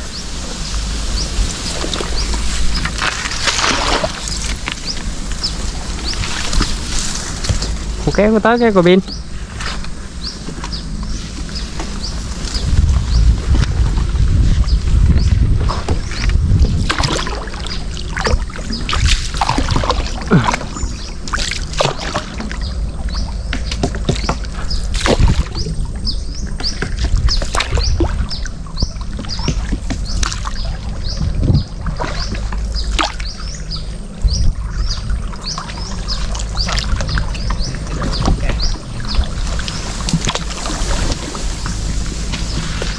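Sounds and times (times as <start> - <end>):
low steady rumble: 0.0 - 42.9
paddle strokes and water splashing: 0.0 - 42.9
bird chirping: 7.5 - 13.4, 25.5 - 39.9.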